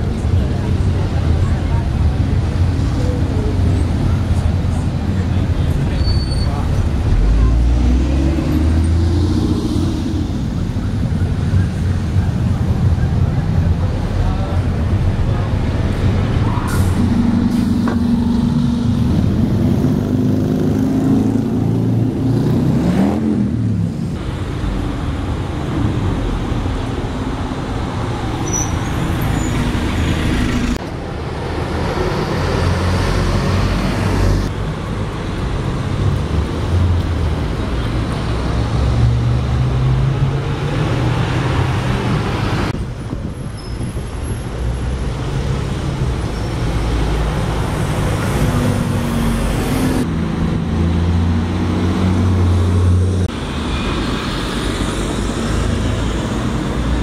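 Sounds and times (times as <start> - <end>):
rumble of bus engines and tyres: 0.0 - 57.0
street traffic: 0.0 - 57.0.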